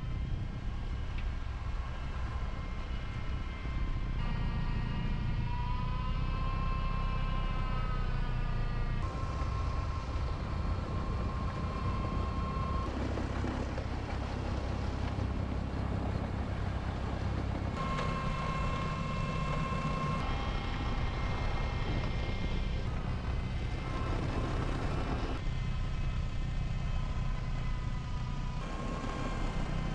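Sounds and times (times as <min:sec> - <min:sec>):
high steady whine: 0:00.0 - 0:29.9
tractor engine rumble: 0:08.5 - 0:29.9.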